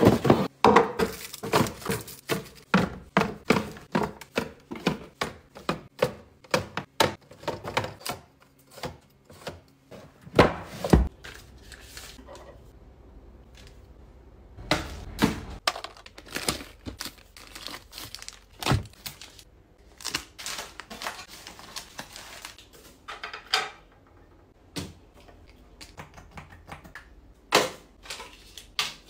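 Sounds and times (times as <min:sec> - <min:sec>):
plastic wrappers crinkling: 0:15.6 - 0:22.7.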